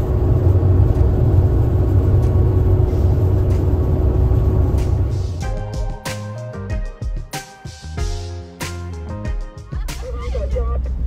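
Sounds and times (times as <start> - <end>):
vehicle engine rumbling: 0.0 - 5.8.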